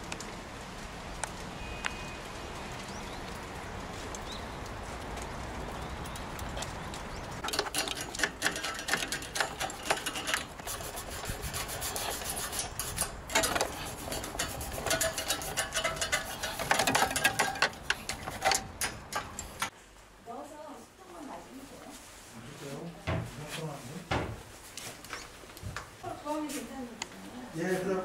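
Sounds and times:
brush scrubbing wire coils: 7.4 - 19.7.

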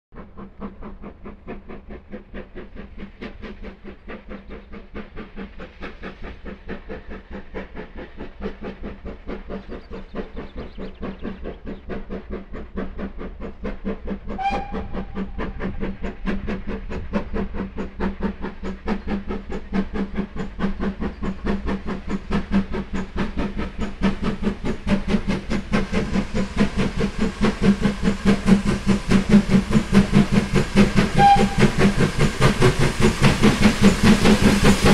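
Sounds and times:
steam locomotive exhaust beating: 0.2 - 34.9
steam whistle toot: 14.4 - 15.1, 31.1 - 31.8.

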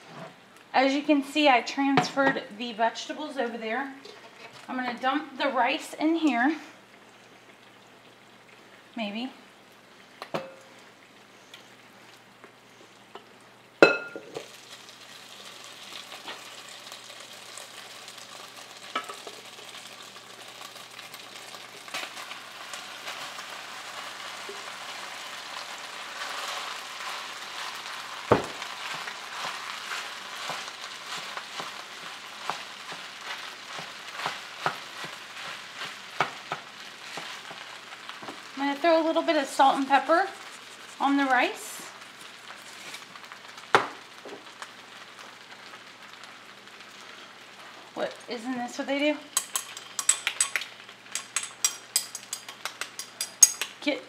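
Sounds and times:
rice sizzling in oil: 0.0 - 53.9
wooden spoon tapping: 49.4 - 53.8.

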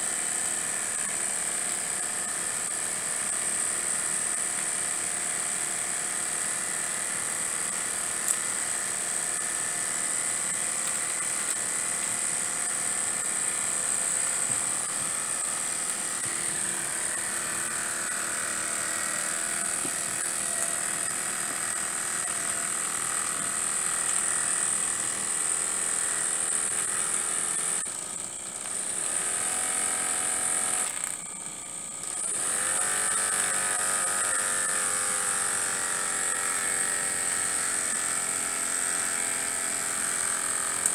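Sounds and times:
steam engine whirring: 0.0 - 40.9.

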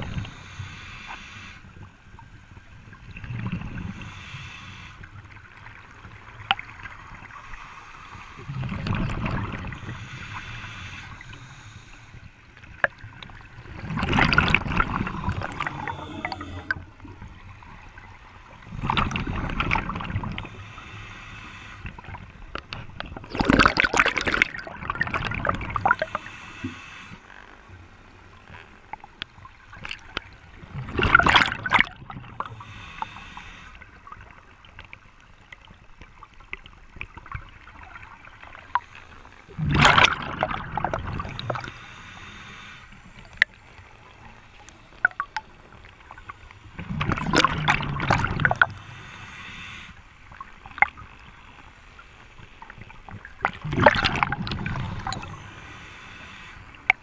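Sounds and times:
exhaled bubbles rushing: 13.6 - 17.3, 23.2 - 26.1, 30.7 - 32.4, 39.6 - 41.7, 46.8 - 48.8, 53.3 - 55.5.

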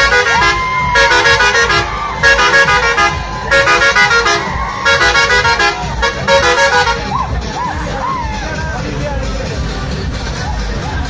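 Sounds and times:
musical air horn playing tune: 0.0 - 7.2.

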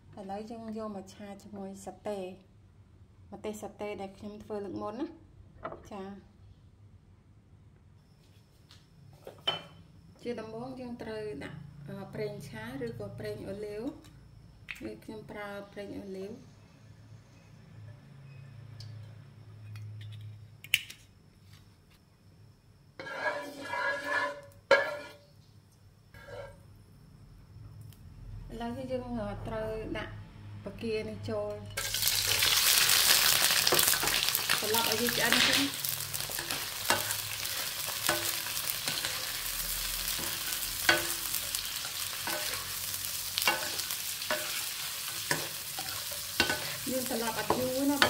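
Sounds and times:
shrimp sizzling in oil: 23.0 - 25.2, 31.8 - 48.0
utensils scraping and clattering: 23.0 - 25.3, 33.6 - 39.5, 43.4 - 48.0
utensil knocking on wok: 38.0 - 39.2, 40.1 - 41.4, 43.4 - 44.6.

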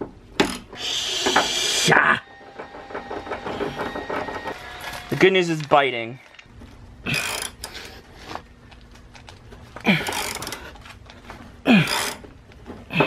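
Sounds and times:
man grunting with effort: 1.6 - 2.2, 7.0 - 7.4, 9.8 - 10.4, 11.6 - 12.2.

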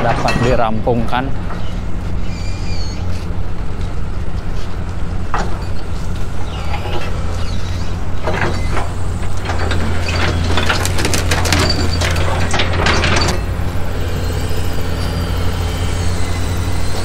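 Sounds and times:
heavy construction machinery rumble: 0.0 - 17.0
rubble knocking and clattering: 9.5 - 13.5.

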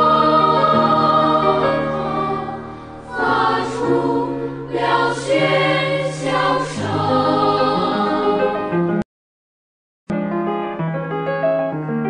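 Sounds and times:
choir singing held chords: 0.0 - 9.0.

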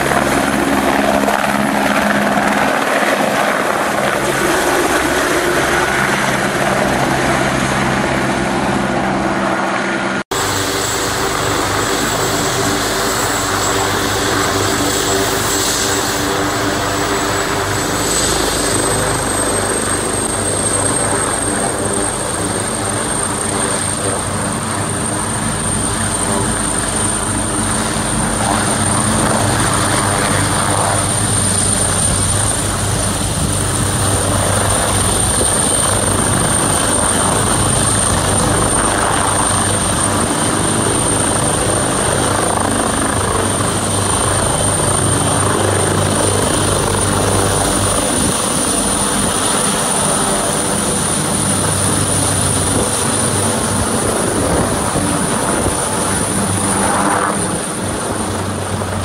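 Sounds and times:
helicopter rotor noise: 0.0 - 59.0
high turbine whine: 0.0 - 59.0.

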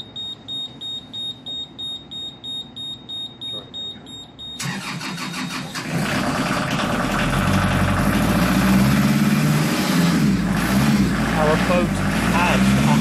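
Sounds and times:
diesel engine starting and idling: 4.5 - 13.0.

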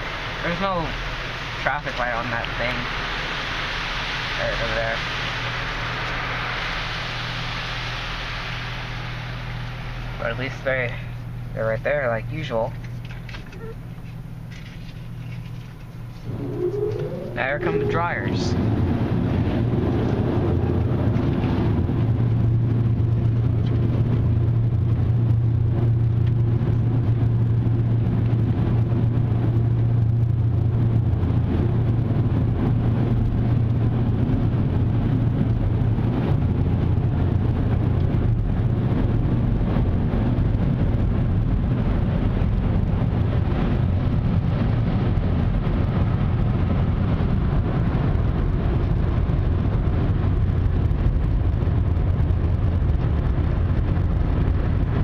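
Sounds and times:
strong low hum: 15.7 - 55.0
car wash air dryers blowing: 16.1 - 20.8.

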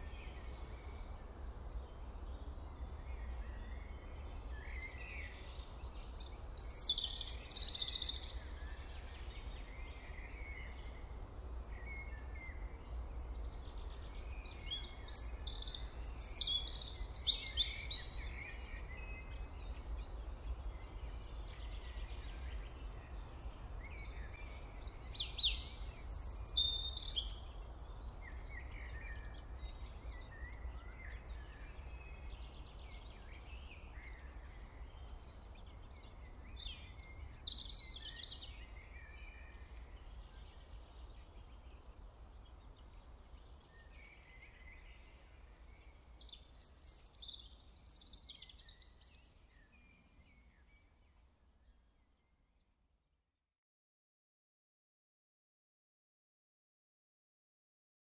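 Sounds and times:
birds chirping and singing: 13.7 - 23.2, 23.8 - 41.8, 43.0 - 50.8.

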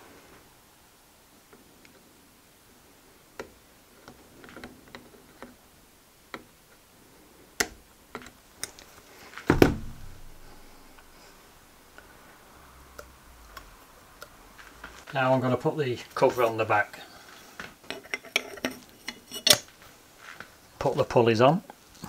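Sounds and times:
pliers clicking on metal parts: 18.1 - 19.6.

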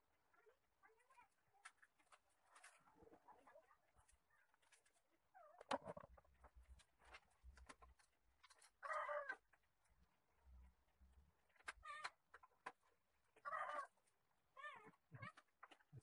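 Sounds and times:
faint animal calls: 8.8 - 9.4, 13.4 - 14.0.

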